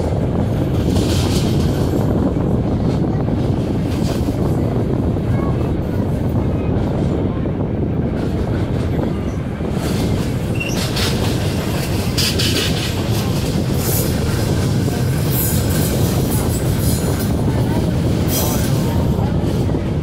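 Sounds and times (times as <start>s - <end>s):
track clatter and rattles: 0.0s - 20.0s
train wheels rumbling on rail: 0.0s - 20.0s.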